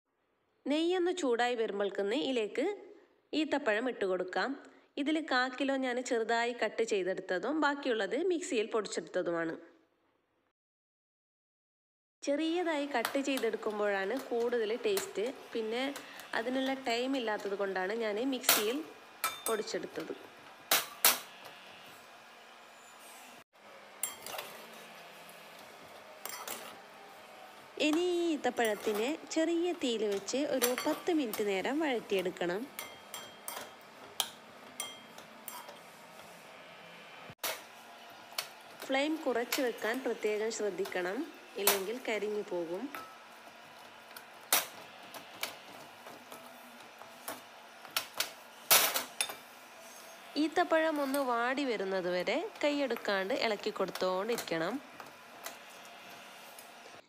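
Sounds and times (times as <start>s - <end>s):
metal spatula scraping a pan: 24.0s - 26.9s, 28.5s - 29.2s, 30.0s - 36.5s, 48.5s - 51.3s.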